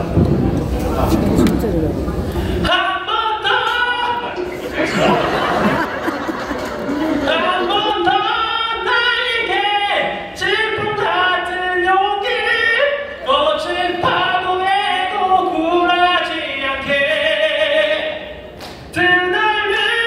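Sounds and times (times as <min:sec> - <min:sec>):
man singing into microphone: 0:02.6 - 0:04.4, 0:07.2 - 0:18.3, 0:18.9 - 0:20.0.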